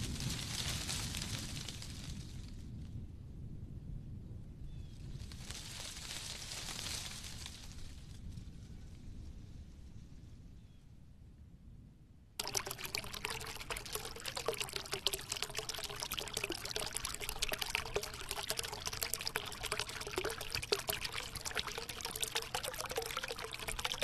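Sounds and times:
small waterfall splashing: 0:12.4 - 0:24.0.

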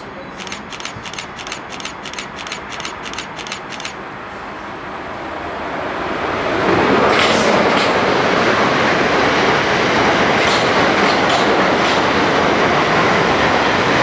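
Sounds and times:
approaching train rumble: 0:00.0 - 0:14.0
camera shutter clicks: 0:00.4 - 0:04.0.

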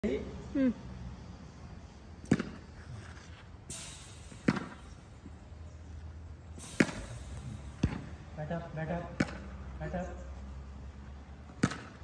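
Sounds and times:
cricket bat hitting ball: 0:11.6 - 0:12.0.

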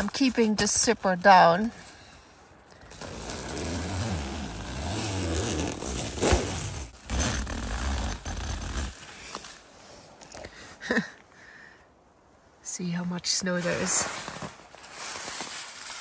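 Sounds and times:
tent zipper being pulled: 0:02.8 - 0:09.5
nylon fabric rustling: 0:02.9 - 0:09.2.

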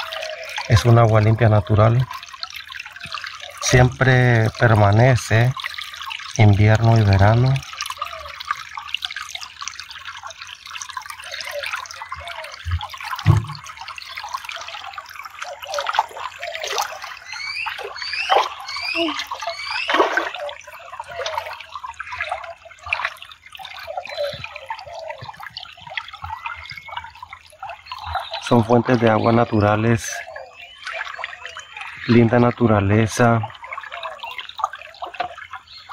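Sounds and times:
water trickling over rocks: 0:00.0 - 0:35.9.

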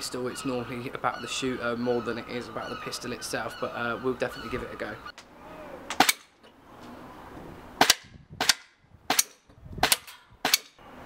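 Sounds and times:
airsoft pistol shots: 0:07.8 - 0:10.8.

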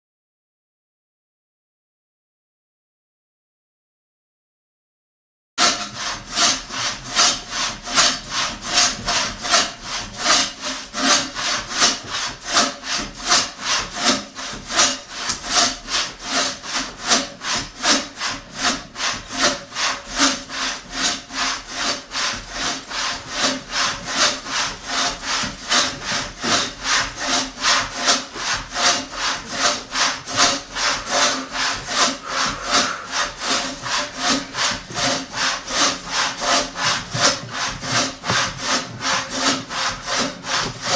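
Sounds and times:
hand saw cutting wood: 0:05.6 - 0:40.9.

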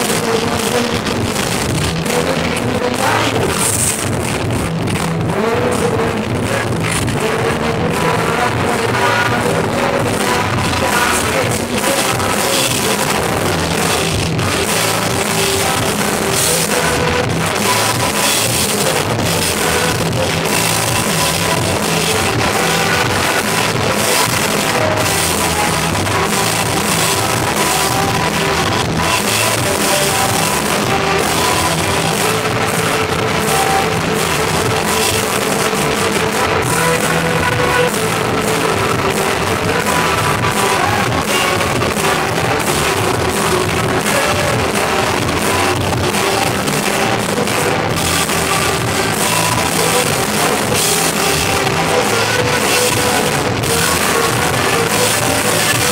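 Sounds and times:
live rock band playing: 0:00.0 - 0:55.9.

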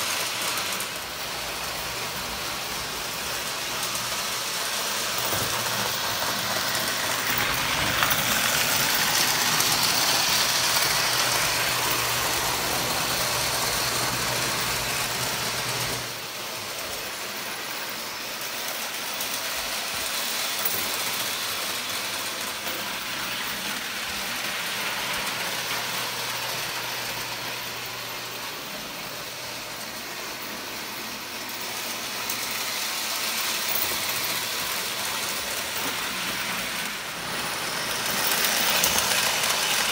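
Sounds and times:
toy trains rolling on track: 0:00.0 - 0:39.9.

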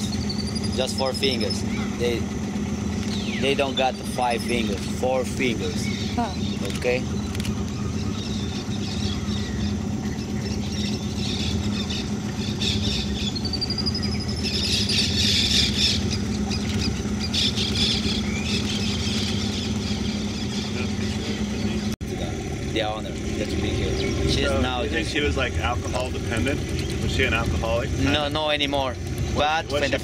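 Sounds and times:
boat motor idling: 0:00.0 - 0:30.0
animals squealing in trees: 0:05.6 - 0:21.8.

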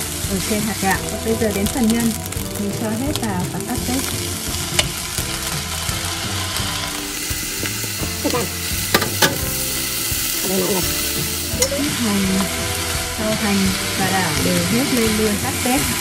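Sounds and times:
rice sizzling in a frying pan: 0:00.0 - 0:16.0
spatula tapping plate and pan: 0:04.1 - 0:05.6, 0:07.6 - 0:09.9, 0:10.8 - 0:11.9.

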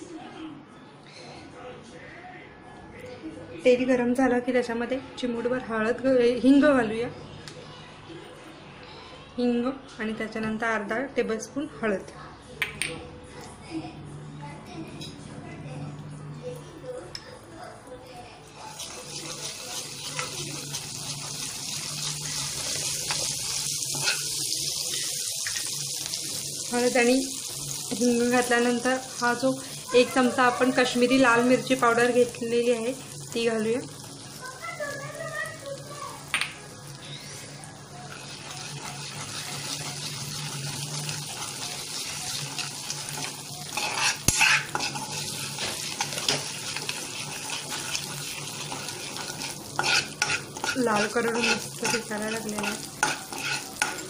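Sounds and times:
spoon stirring: 0:18.6 - 0:25.7, 0:38.0 - 0:54.0
hot oil sizzling and crackling: 0:18.6 - 0:54.0
ladle scraping pan: 0:22.0 - 0:24.5, 0:41.1 - 0:54.0.

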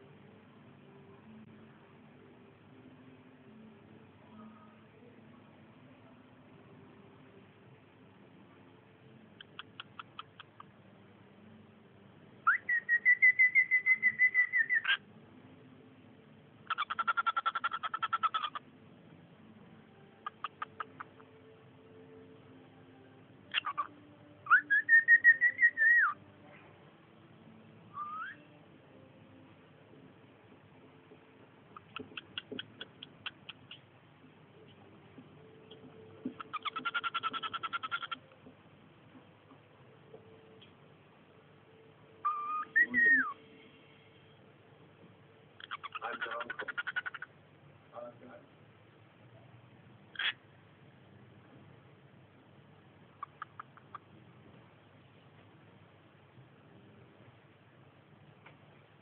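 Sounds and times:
cockatiel chirping and whistling: 0:12.4 - 0:15.0, 0:16.7 - 0:18.6, 0:23.5 - 0:26.2, 0:27.9 - 0:28.5, 0:36.4 - 0:38.2, 0:42.2 - 0:43.4, 0:45.6 - 0:47.2, 0:53.2 - 0:54.0.

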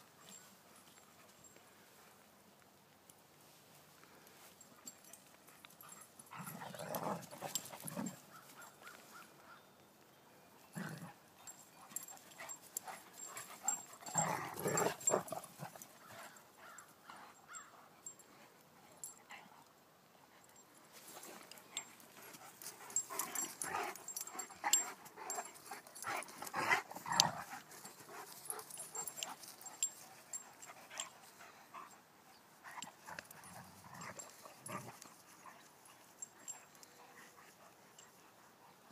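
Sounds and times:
dogs play-fighting vocal noises: 0:05.8 - 0:08.9, 0:11.8 - 0:16.4, 0:21.2 - 0:31.9, 0:32.6 - 0:35.7.

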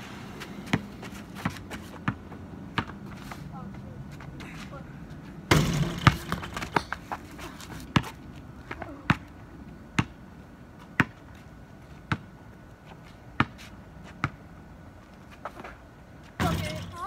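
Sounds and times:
ball rattling the hoop: 0:05.5 - 0:07.1, 0:16.4 - 0:17.0
ball bouncing on concrete: 0:05.5 - 0:07.2, 0:16.4 - 0:17.0.

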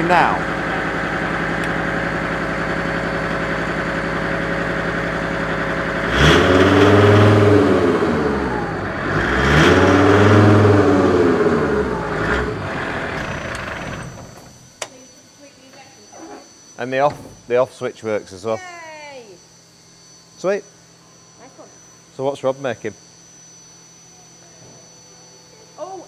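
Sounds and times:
diesel engine idling and revving: 0:00.0 - 0:14.6.

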